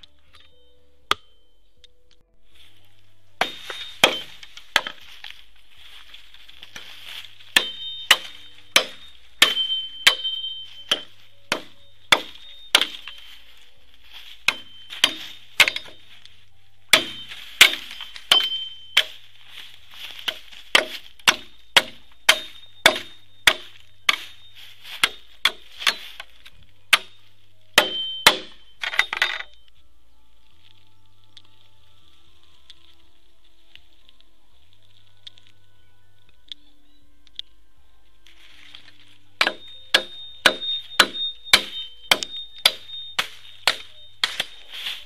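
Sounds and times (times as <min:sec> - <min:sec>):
machete chopping bamboo: 0:03.4 - 0:05.1, 0:06.8 - 0:13.2, 0:14.4 - 0:16.1, 0:16.9 - 0:19.2, 0:20.1 - 0:26.3, 0:26.9 - 0:27.2, 0:27.8 - 0:29.2, 0:39.4 - 0:45.0.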